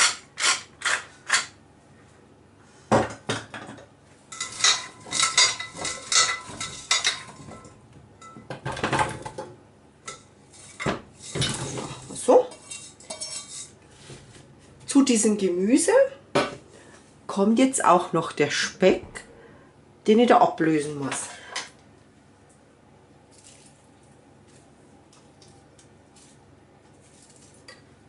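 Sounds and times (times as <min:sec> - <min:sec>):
metal bowl clanking: 0:04.3 - 0:08.5, 0:10.1 - 0:13.7
vegetables clattering in metal bowl: 0:04.3 - 0:09.5, 0:10.1 - 0:13.7
pepper mill grinding: 0:25.4 - 0:27.8.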